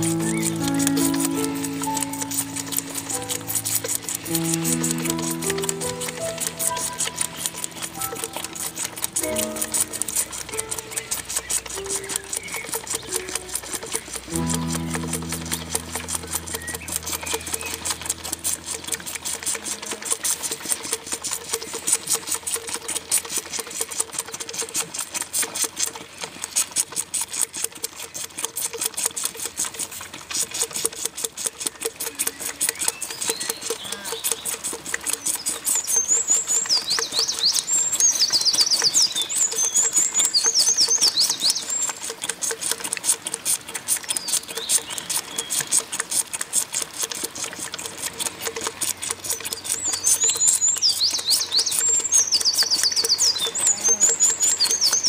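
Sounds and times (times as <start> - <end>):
birds singing: 0.0 - 3.6, 5.3 - 14.1, 32.2 - 34.5, 35.2 - 41.9, 49.6 - 55.0
lamb sucking from bottle: 0.0 - 55.0.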